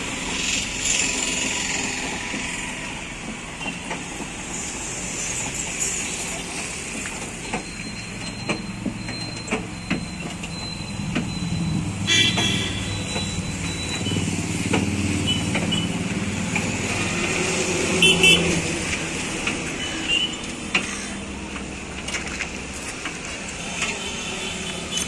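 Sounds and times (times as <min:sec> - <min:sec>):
van engine and road noise: 0:00.0 - 0:25.0
car horn toot: 0:12.0 - 0:13.1, 0:18.0 - 0:18.6.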